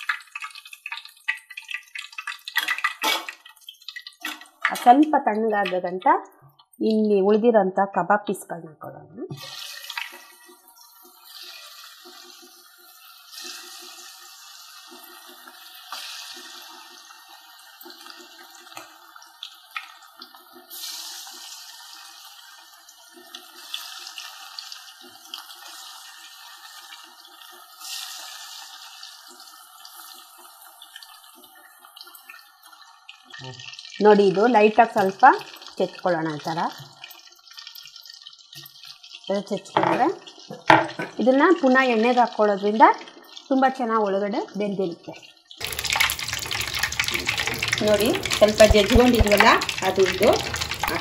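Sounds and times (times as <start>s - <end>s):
chicken deep-frying in oil: 0.0s - 7.3s, 9.2s - 51.0s.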